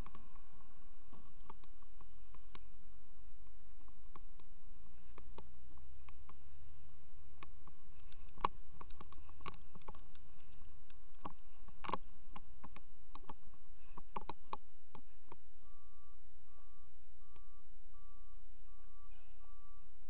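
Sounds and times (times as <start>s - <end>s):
faint low rumble: 0.0s - 20.0s
sharp clicks and knocks: 7.4s - 15.4s
truck back-up alarm beeping: 15.6s - 20.0s.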